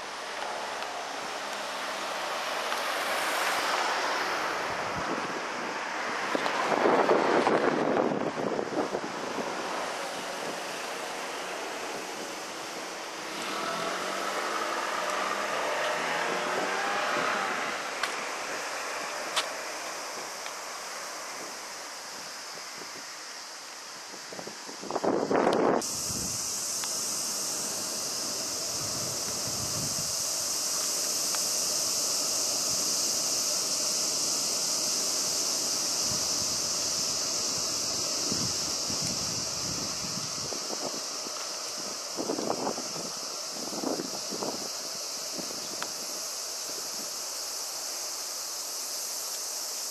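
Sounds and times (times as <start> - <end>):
high-pitched hiss: 0.0 - 49.9
car passing: 0.4 - 8.3, 9.0 - 22.0, 25.8 - 40.4
wind on microphone: 4.6 - 10.8, 24.2 - 47.2.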